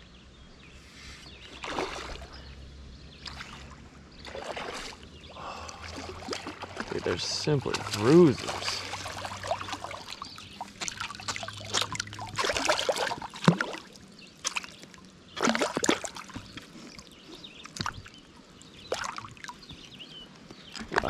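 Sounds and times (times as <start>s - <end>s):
fish splashing in water: 1.6s - 2.4s, 3.2s - 17.0s, 18.8s - 19.6s.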